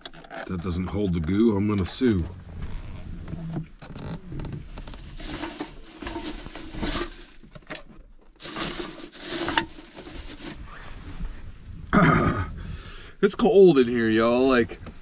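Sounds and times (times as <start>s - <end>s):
plastic bag crinkling: 4.6s - 10.6s
blanket rustling: 4.7s - 7.4s, 8.4s - 10.6s.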